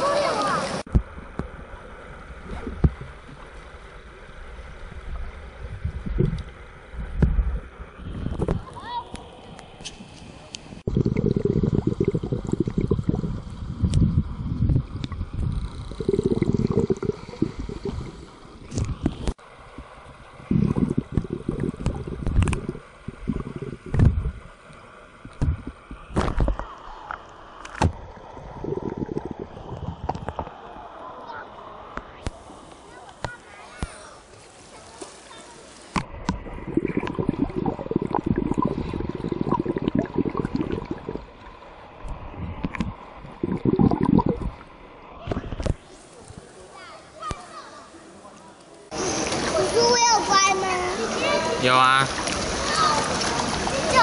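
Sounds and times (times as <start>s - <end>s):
underwater sloshing and bubbling: 0.0s - 32.7s, 34.3s - 46.6s
underwater clicks: 14.7s - 19.4s, 20.6s - 28.0s, 35.9s - 41.2s, 42.0s - 44.6s.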